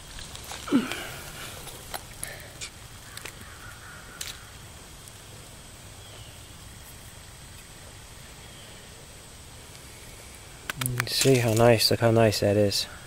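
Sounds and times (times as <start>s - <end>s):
faint woodland background: 0.0s - 13.0s
distant bird call: 2.2s - 4.7s
mushrooms snapping apart: 10.6s - 11.7s.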